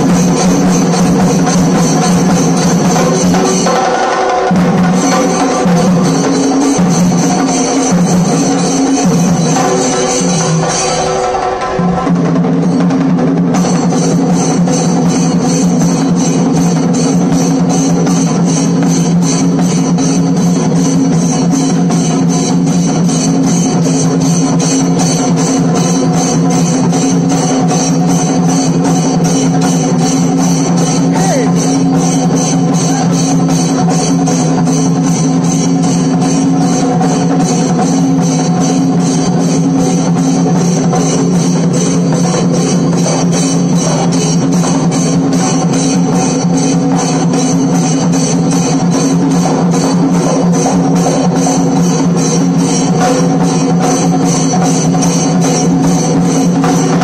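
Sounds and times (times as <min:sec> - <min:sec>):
drums beaten with sticks: 0:00.0 - 0:57.0.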